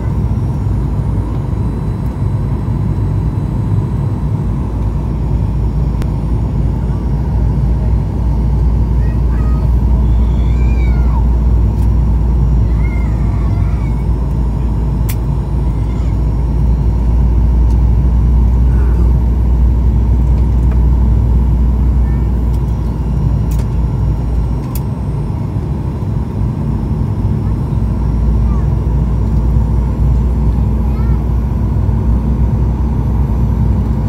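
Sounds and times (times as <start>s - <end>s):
airliner cabin rumble: 0.0s - 34.0s.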